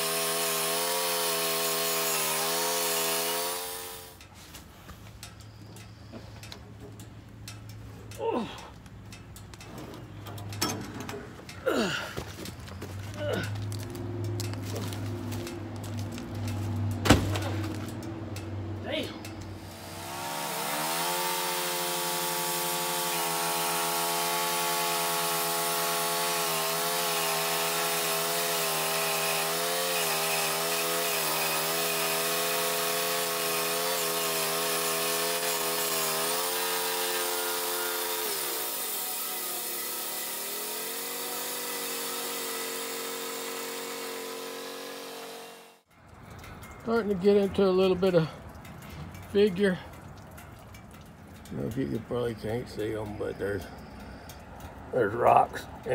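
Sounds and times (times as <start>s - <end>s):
band saw blade cutting wood: 0.0s - 4.2s, 19.5s - 45.9s
sawmill engine revving: 0.0s - 4.2s, 18.8s - 45.9s.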